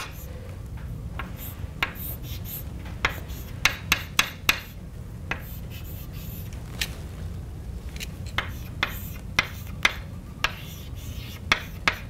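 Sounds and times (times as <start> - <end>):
chalk tapping on blackboard: 1.2 - 6.4, 8.4 - 12.0
chalk scraping: 1.2 - 6.6, 8.4 - 9.8, 10.4 - 12.0.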